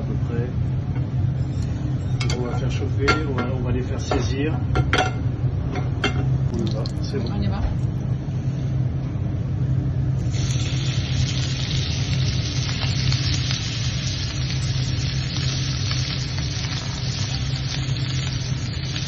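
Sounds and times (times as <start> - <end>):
lobster sizzling in hot oil: 10.2 - 19.0.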